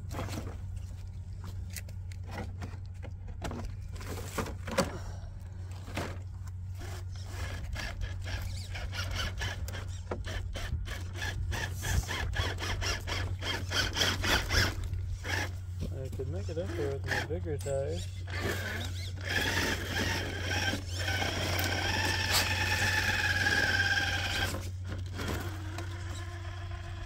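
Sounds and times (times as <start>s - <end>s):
electric drivetrain whirring: 5.8s - 27.0s.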